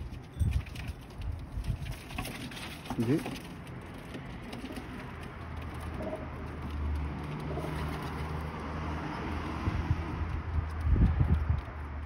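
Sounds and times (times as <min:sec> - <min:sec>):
pigeon cooing: 0:05.8 - 0:06.6.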